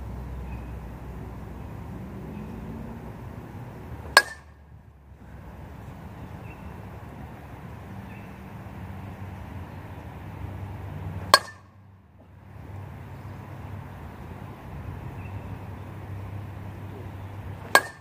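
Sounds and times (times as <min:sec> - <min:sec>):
metal bat striking ball: 0:04.1 - 0:04.6, 0:11.3 - 0:11.7, 0:17.7 - 0:18.0.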